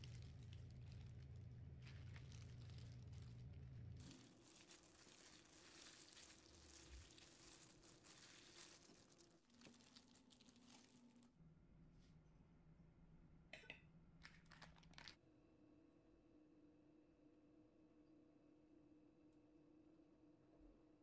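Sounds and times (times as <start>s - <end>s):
plastic gloves crinkling: 0.0s - 11.3s, 14.2s - 15.2s.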